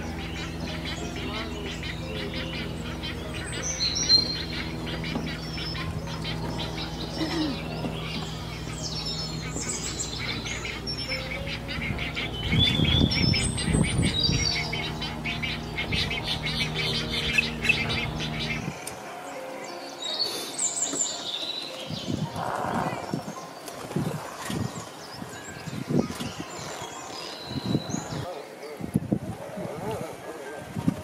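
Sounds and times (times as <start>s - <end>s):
steady low hum: 0.0s - 20.1s
harsh low squawking: 0.0s - 21.2s, 22.0s - 28.3s
egrets chirping and chattering: 0.0s - 30.8s.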